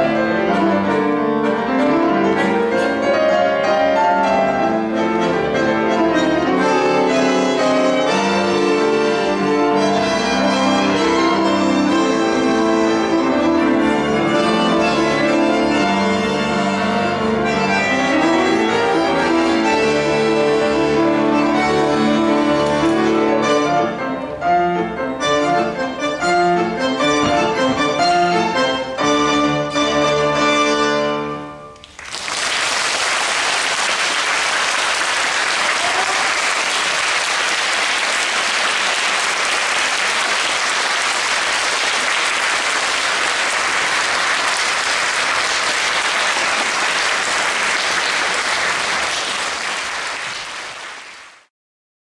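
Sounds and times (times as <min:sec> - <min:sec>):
violin piano and bandoneon trio: 0:00.0 - 0:31.8
audience applauding: 0:31.8 - 0:51.5.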